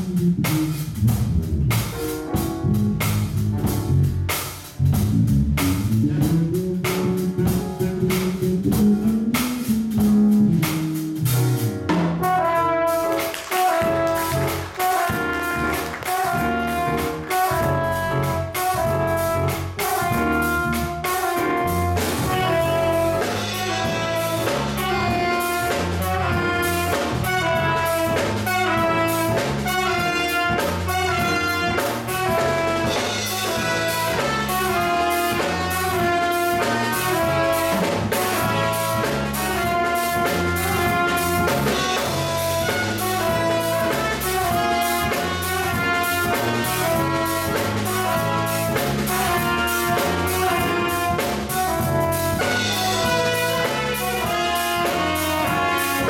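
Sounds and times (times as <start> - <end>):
drum kit with cymbals: 0.0 - 56.0
trombone: 0.0 - 56.0
trumpet: 11.2 - 56.0
saxophone: 12.2 - 56.0.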